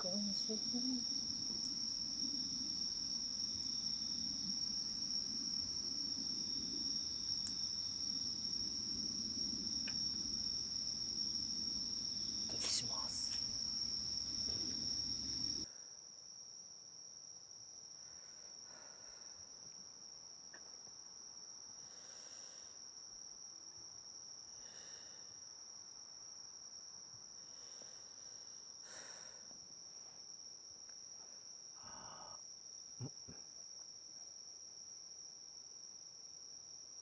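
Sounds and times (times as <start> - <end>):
night insects trilling: 0.0 - 37.0
campfire burning: 1.1 - 12.6, 13.3 - 15.6.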